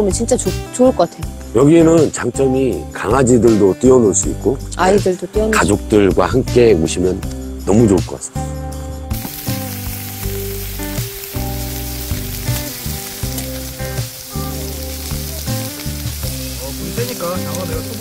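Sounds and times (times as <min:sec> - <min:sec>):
background music: 0:00.0 - 0:18.0
meat sizzling on a griddle: 0:09.1 - 0:18.0.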